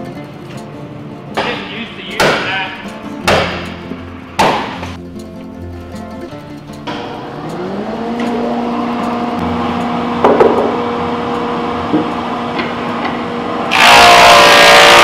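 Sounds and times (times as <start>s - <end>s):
sharp wooden knock: 1.4s - 3.8s, 4.4s - 5.0s
planer humming: 6.9s - 15.0s
planer cutting wood: 7.2s - 15.0s.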